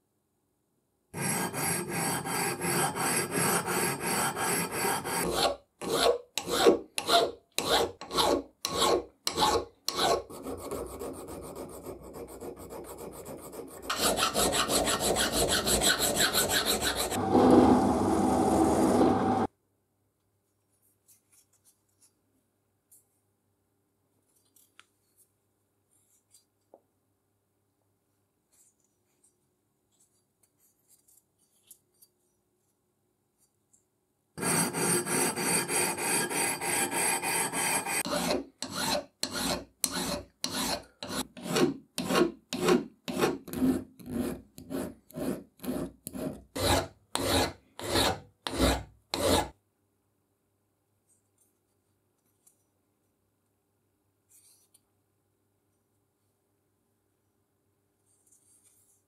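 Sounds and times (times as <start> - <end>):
hand file rasping on steel: 1.2 - 17.2, 34.4 - 49.5.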